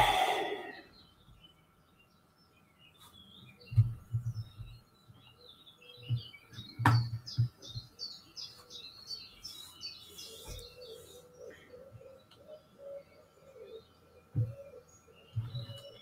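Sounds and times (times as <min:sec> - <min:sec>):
small birds chirping: 0:00.0 - 0:16.0
dull thumps and knocks: 0:06.0 - 0:07.9, 0:14.3 - 0:14.6.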